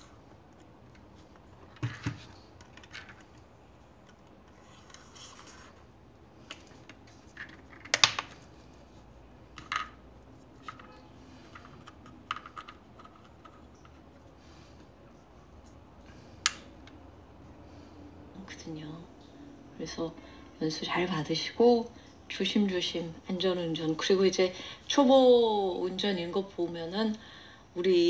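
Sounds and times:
hands handling wooden radio: 0.2 - 15.8.

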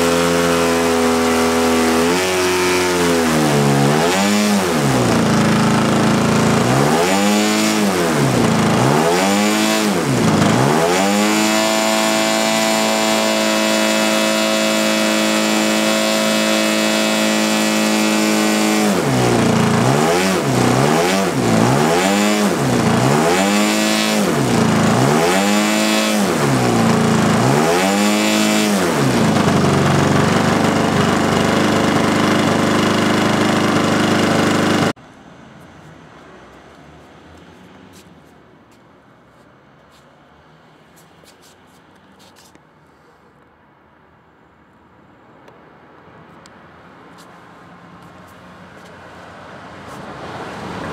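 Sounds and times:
model plane engine revving: 0.0 - 35.0.

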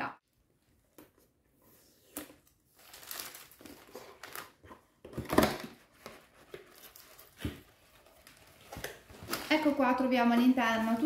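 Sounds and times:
paper packing rustling: 2.2 - 11.0.

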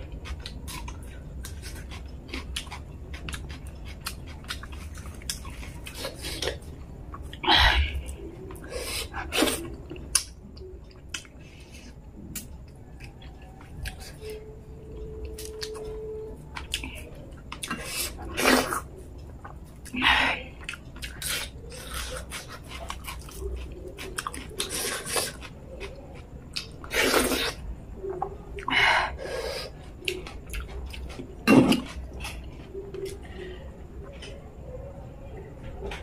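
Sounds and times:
wet chewing and lip smacks: 0.2 - 7.4, 20.6 - 28.7, 29.8 - 33.3.

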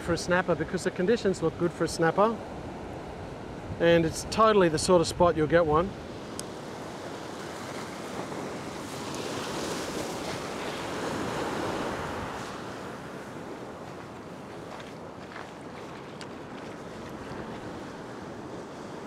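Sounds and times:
surf washing over rock: 3.8 - 19.0.

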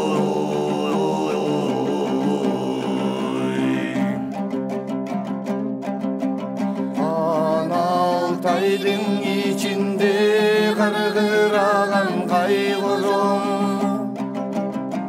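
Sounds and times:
low drone: 0.0 - 4.3
chant-like folk singing: 0.0 - 5.6, 6.4 - 15.0
plucked strings: 0.0 - 15.0.

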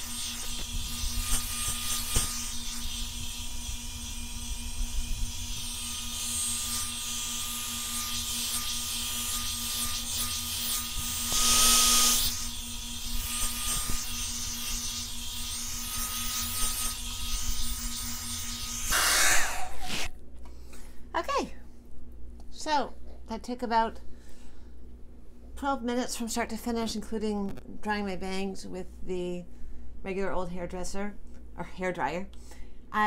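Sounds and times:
hair dryer motor hum and whine: 0.0 - 20.1.

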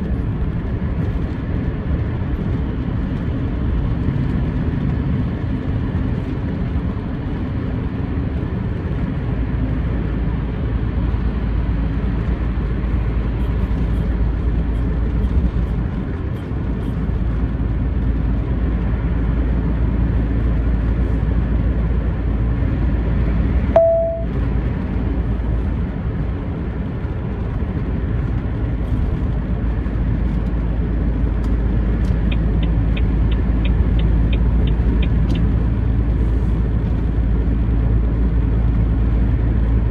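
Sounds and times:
truck engine and tyres droning: 0.0 - 39.9
short beep: 23.8 - 24.3
light ticks: 31.4 - 35.5.

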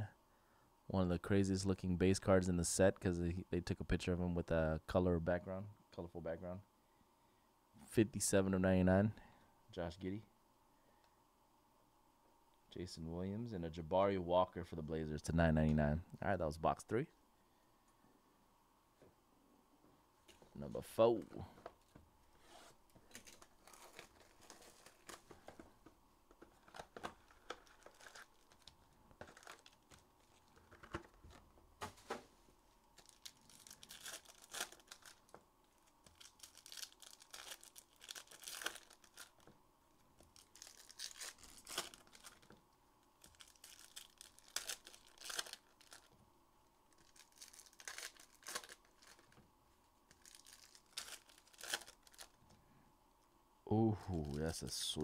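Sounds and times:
packaging being torn and crinkled: 23.1 - 25.4, 26.5 - 31.4, 33.0 - 39.5, 40.2 - 42.5, 43.2 - 46.1, 46.9 - 49.4, 50.1 - 52.4.

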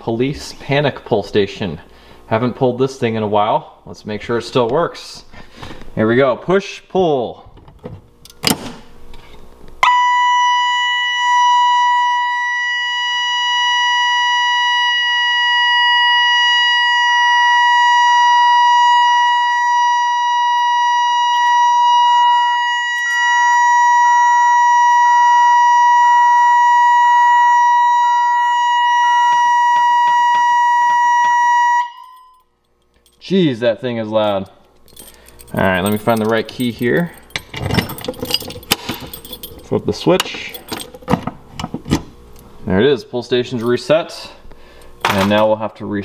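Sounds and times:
security alarm siren: 9.8 - 32.6.

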